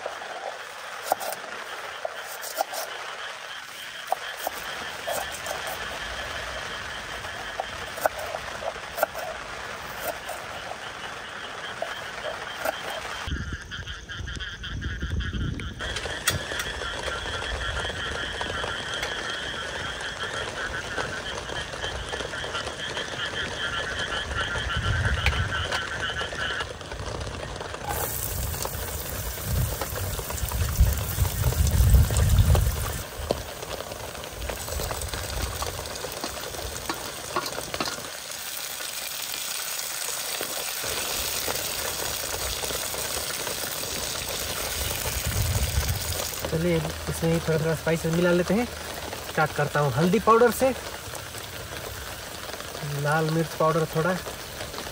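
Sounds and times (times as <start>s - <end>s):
vegetables sizzling in hot oil: 0.0s - 13.3s, 26.4s - 54.9s
frogs croaking: 0.0s - 54.9s.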